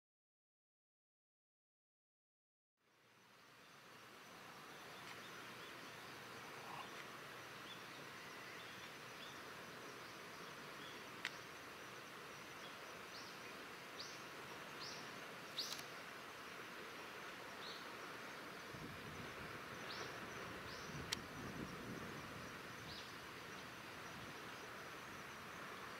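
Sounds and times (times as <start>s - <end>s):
outdoor background hiss: 2.8s - 25.9s
small bird chirping: 14.8s - 15.9s
sharp clicks: 15.6s - 15.9s.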